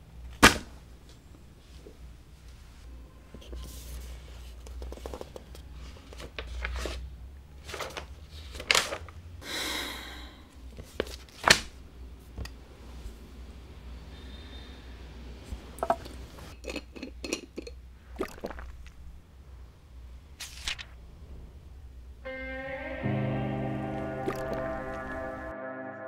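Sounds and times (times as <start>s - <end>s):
paper rustling: 3.4s - 9.2s, 10.8s - 11.8s, 20.4s - 21.0s
paper snaps: 11.4s - 11.8s, 20.4s - 21.0s.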